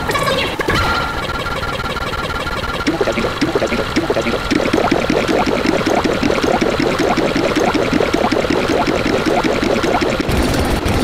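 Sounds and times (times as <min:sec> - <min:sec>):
short pitched blips: 0:02.9 - 0:10.3.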